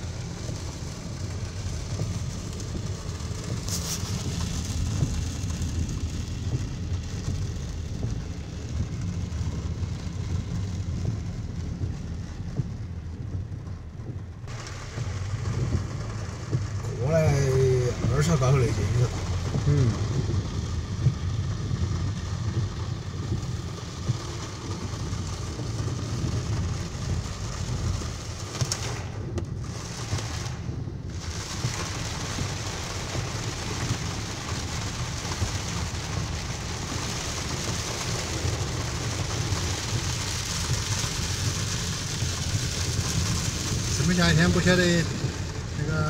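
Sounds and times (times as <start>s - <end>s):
car rumbling: 0.0s - 46.0s
heavy rain on a car: 0.0s - 46.0s.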